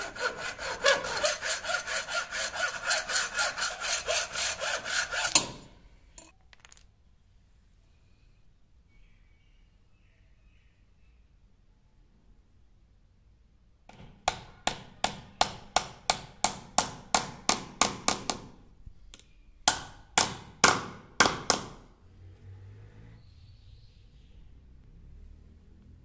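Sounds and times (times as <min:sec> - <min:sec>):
hammer striking nail into wood: 0:13.9 - 0:18.5, 0:19.7 - 0:21.8.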